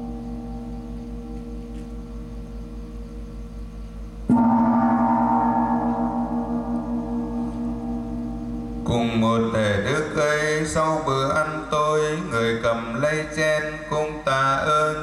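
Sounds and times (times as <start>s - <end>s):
large gong ringing: 0.0s - 2.9s, 4.2s - 11.4s.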